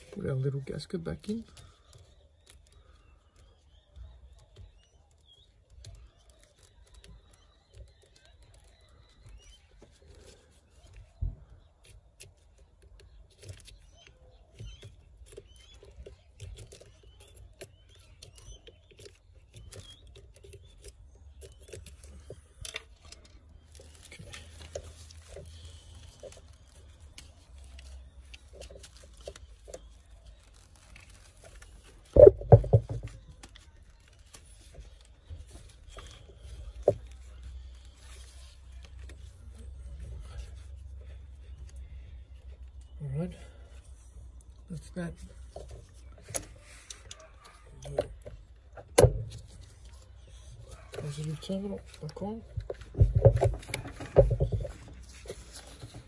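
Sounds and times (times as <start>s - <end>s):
soft rustling: 43.6s - 56.0s.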